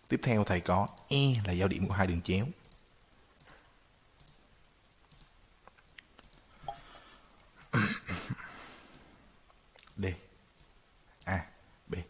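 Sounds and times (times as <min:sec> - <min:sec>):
computer mouse clicking: 0:02.6 - 0:03.6, 0:04.2 - 0:04.4, 0:05.0 - 0:06.5, 0:10.6 - 0:11.3.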